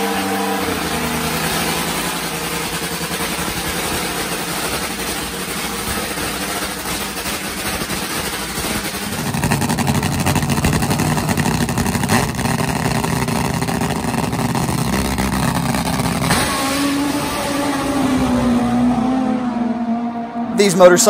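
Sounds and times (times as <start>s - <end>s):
motorcycle engine idling: 0.0s - 16.6s.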